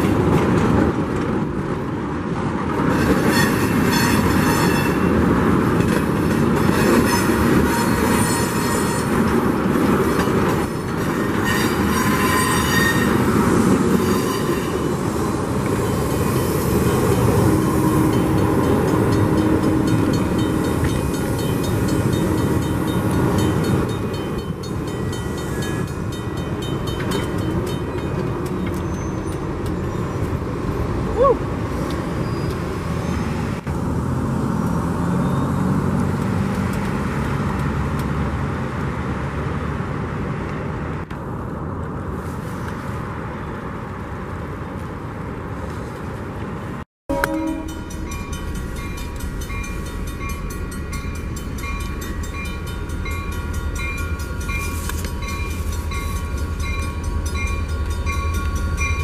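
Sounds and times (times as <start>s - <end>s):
low rumble of locomotive: 0.0s - 34.0s, 41.0s - 59.0s
train rolling past: 0.0s - 34.0s, 45.5s - 59.0s
train horn: 3.1s - 5.1s, 6.7s - 9.1s, 11.1s - 13.2s, 47.1s - 48.0s
crossing bell ringing: 10.2s - 13.2s, 14.0s - 30.3s, 47.1s - 59.0s.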